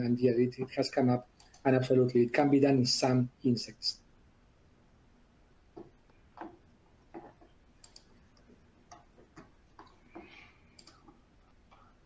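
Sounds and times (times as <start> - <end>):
faint keyboard clicking: 0.6 - 1.9, 5.7 - 12.0.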